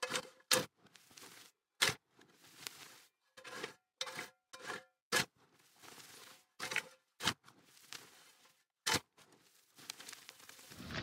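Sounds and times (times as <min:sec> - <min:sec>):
rake working through soil: 0:00.0 - 0:11.0
shovel scraping concrete: 0:03.4 - 0:05.4, 0:10.7 - 0:11.0.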